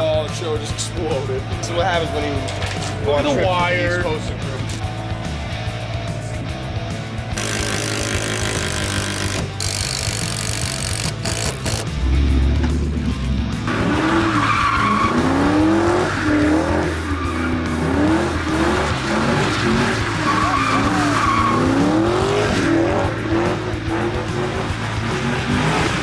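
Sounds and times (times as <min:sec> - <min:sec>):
car engine revving: 0:01.2 - 0:26.0
tyres squealing on asphalt: 0:13.8 - 0:23.6.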